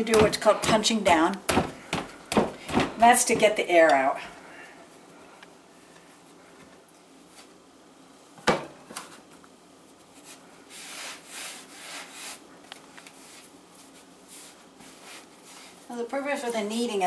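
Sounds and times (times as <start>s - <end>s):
dough thump: 0.0s - 4.0s
hands rubbing dough: 9.8s - 16.4s.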